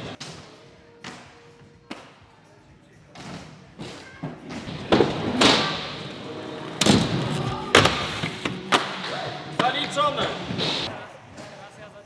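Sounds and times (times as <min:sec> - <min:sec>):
skates thumping on obstacles: 0:03.1 - 0:06.1, 0:06.7 - 0:11.6
inline skates rolling on ramps: 0:03.8 - 0:10.9.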